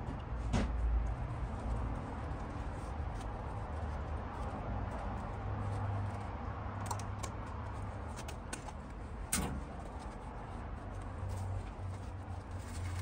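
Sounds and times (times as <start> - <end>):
metallic clicks and taps: 6.8 - 9.5.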